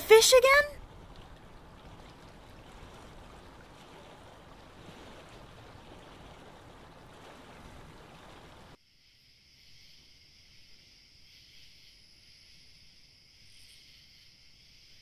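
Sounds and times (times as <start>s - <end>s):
stream rushing: 0.0s - 8.8s
crickets chirring: 7.9s - 15.0s.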